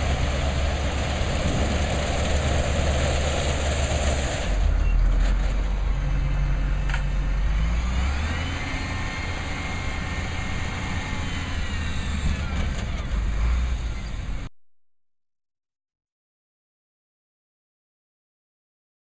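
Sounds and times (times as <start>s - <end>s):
diesel truck engine: 0.0s - 14.5s.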